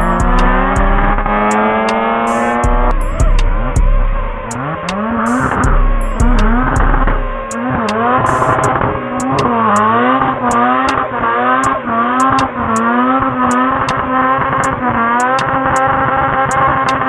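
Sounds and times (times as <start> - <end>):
rotary engine revving hard: 0.0 - 17.0
sharp clicks: 1.4 - 3.9, 4.5 - 9.9, 10.8 - 11.0.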